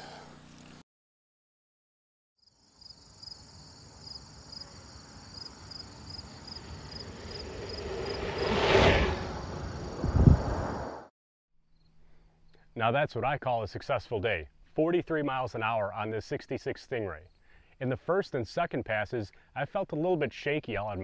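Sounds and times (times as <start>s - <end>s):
insects chirping: 2.4s - 11.0s, 11.7s - 12.7s
bicycle tyres and wind rushing: 6.1s - 11.1s.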